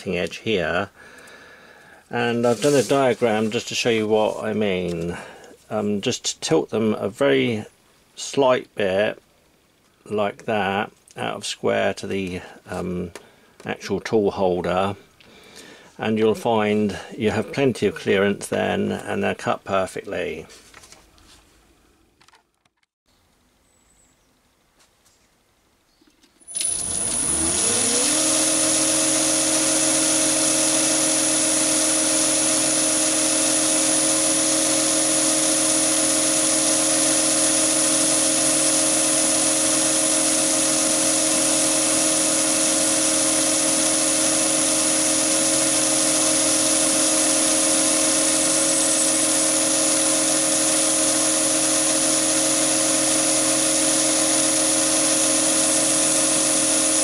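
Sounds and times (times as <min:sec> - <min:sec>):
lathe whining: 0:26.5 - 0:57.0.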